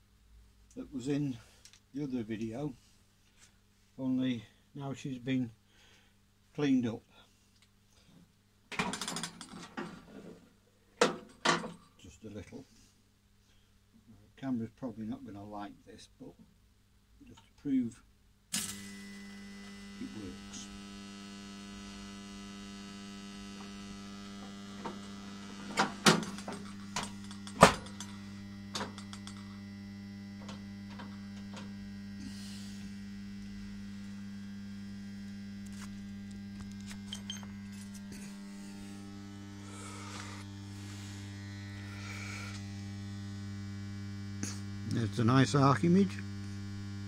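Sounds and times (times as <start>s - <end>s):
arc lamp mains hum: 17.2s - 47.0s.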